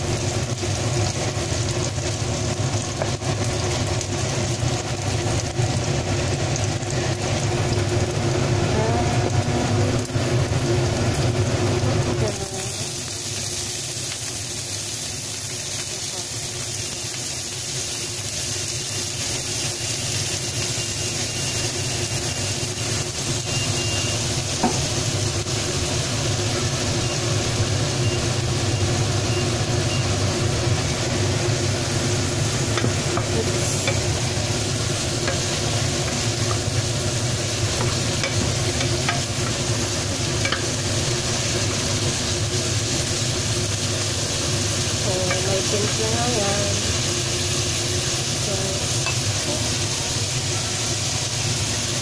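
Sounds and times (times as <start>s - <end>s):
food sizzling in a frying pan: 0.0s - 52.0s
spatula scraping and tapping pan: 37.8s - 39.6s.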